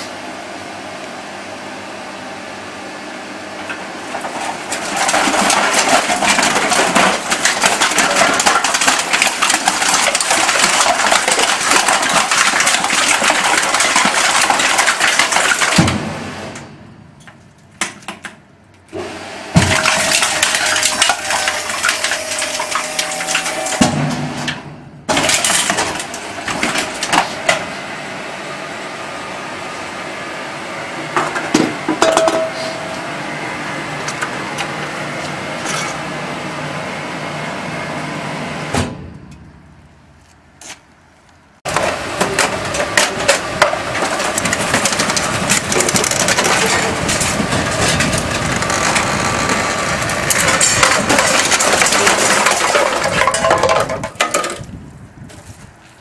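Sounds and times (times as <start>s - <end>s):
machine hum: 0.0s - 56.0s
tin cans crushed in baler: 4.1s - 16.6s, 19.5s - 27.7s, 41.7s - 54.8s.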